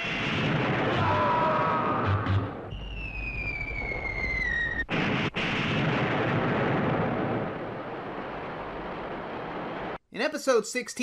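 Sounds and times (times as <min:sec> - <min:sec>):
large explosion rumble: 0:00.0 - 0:10.0
descending whistle: 0:02.3 - 0:04.9.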